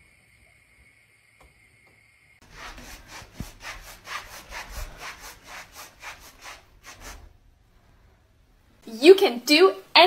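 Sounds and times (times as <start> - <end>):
hand rubbing soft surface: 2.4 - 7.3.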